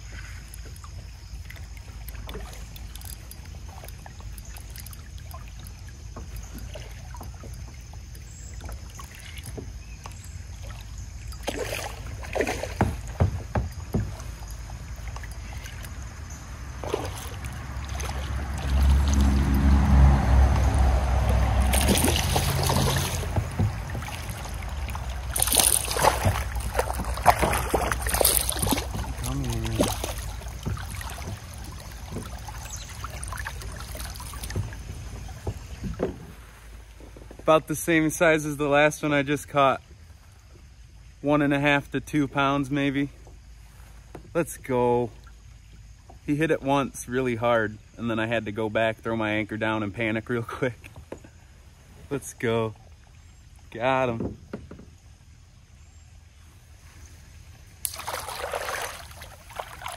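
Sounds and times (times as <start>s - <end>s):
fish splashing at water surface: 10.4s - 36.6s, 57.7s - 59.9s
low rumble: 16.1s - 25.5s.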